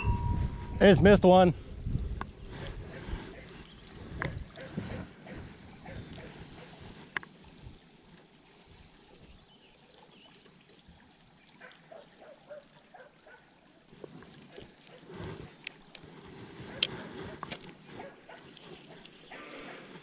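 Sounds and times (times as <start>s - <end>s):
fishing reel clicks and rustling: 14.6s - 19.3s.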